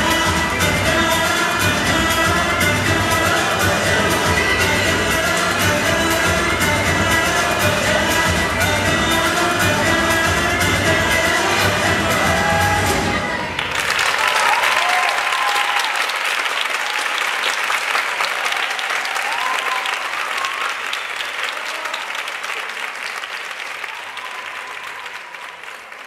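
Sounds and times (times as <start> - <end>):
audience applauding: 13.5 - 26.0.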